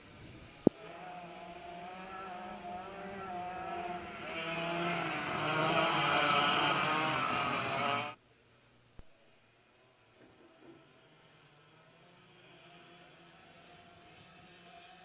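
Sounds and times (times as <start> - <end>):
kart engines buzzing: 0.4 - 8.2, 10.2 - 15.0.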